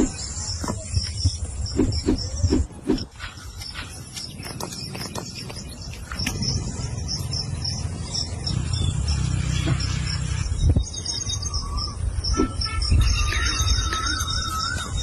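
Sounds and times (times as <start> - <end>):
high-pitched chirps: 10.4 - 15.0.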